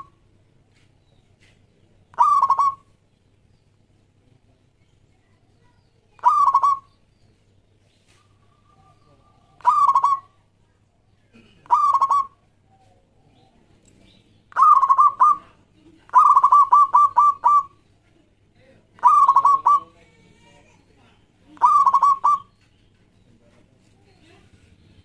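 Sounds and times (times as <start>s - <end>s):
dove cooing: 2.1s - 2.9s, 6.2s - 6.9s, 8.2s - 10.4s, 11.4s - 13.6s, 14.5s - 17.8s, 19.0s - 20.0s, 21.6s - 22.5s.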